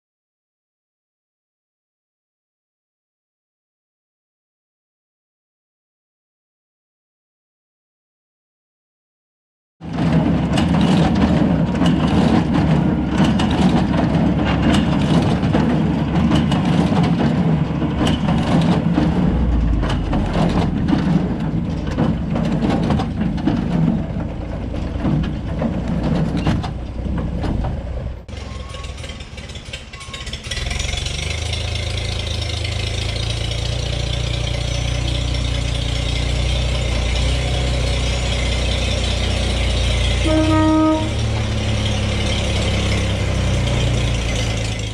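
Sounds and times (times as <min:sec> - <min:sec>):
tractor engine running: 0:09.8 - 0:44.9
baler mechanical clatter: 0:09.9 - 0:44.9.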